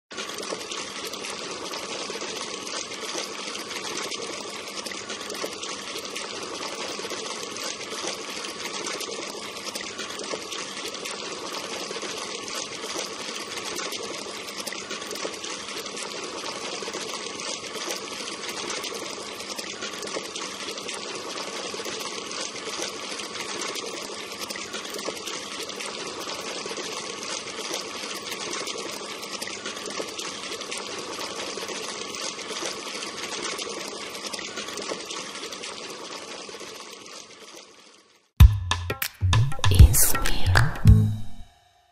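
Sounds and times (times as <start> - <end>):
water splashing into tank: 0.1 - 37.6.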